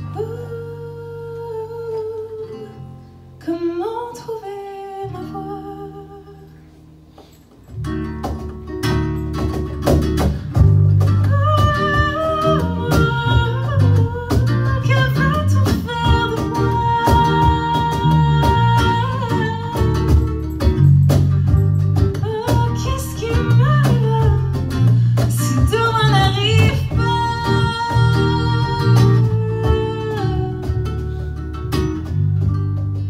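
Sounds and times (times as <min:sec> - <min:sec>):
woman singing: 0:00.0 - 0:06.6, 0:11.0 - 0:32.7
acoustic guitar: 0:00.0 - 0:33.0
electric bass: 0:07.8 - 0:33.0.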